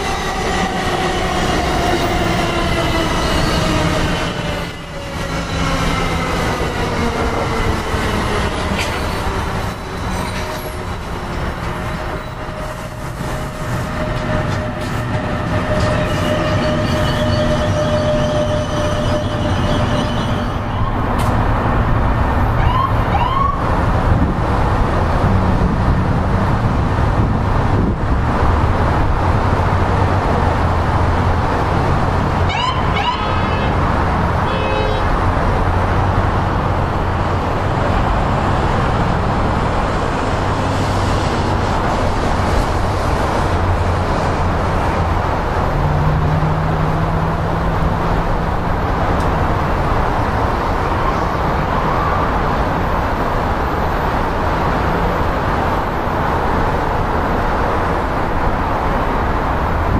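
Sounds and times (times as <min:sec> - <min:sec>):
train cars rumbling: 0:00.0 - 0:59.9
train wheel squeals: 0:00.2 - 0:06.3, 0:08.8 - 0:11.0, 0:12.2 - 0:21.0.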